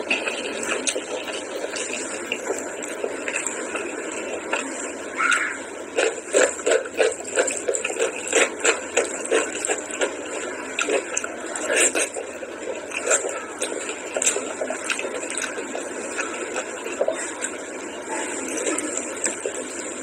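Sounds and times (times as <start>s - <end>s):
wet chewing and lip smacking: 0.0s - 20.0s.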